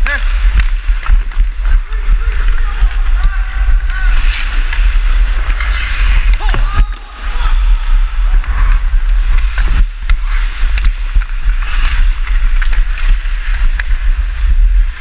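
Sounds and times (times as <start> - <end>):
wind rumbling on microphone: 0.0 - 15.0
skate blades scraping ice: 0.1 - 7.4, 8.2 - 15.0
hockey stick clicking puck: 9.3 - 14.0.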